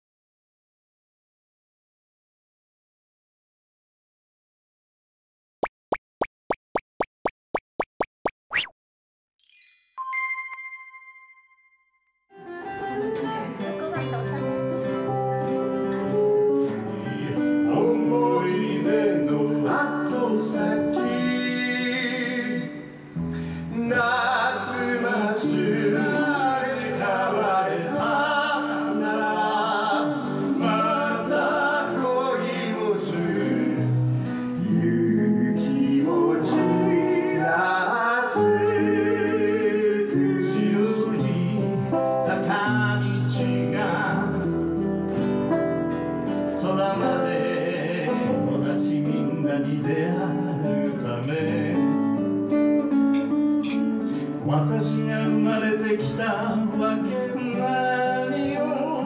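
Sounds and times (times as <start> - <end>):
guitars playing: 12.3 - 34.6, 40.2 - 59.0
men singing: 17.4 - 22.8, 23.8 - 44.5, 46.6 - 52.0, 54.4 - 59.0.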